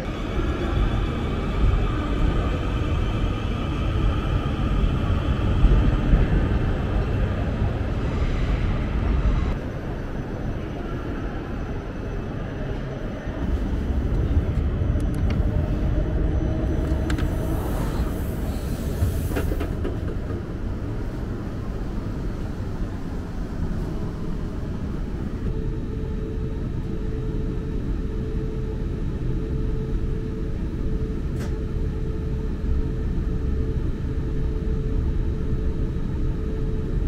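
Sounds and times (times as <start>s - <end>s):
train carriage rumble: 0.0s - 25.5s.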